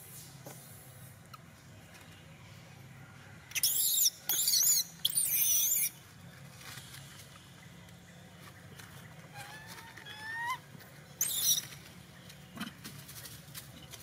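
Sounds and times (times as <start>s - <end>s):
baby monkey screaming: 3.6s - 5.9s, 9.3s - 10.6s, 11.2s - 11.7s.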